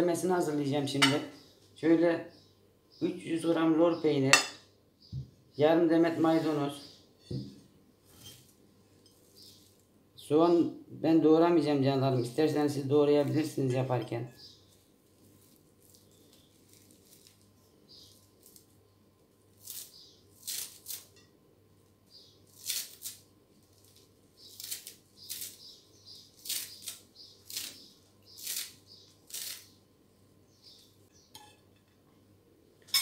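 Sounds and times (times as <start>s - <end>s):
knife cutting parsley: 19.6s - 21.2s, 22.5s - 29.7s.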